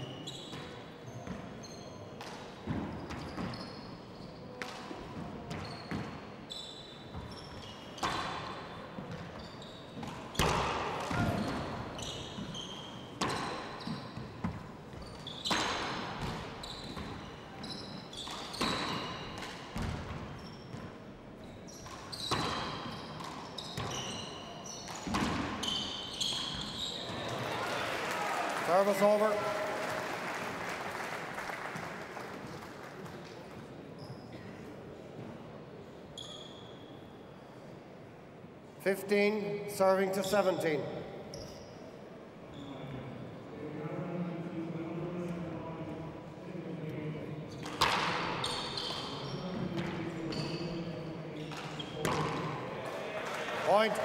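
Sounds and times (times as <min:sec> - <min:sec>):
sneakers squeaking on hardwood floor: 0:00.0 - 0:27.6, 0:34.0 - 0:34.6, 0:36.2 - 0:37.1, 0:41.2 - 0:43.0, 0:47.5 - 0:52.6.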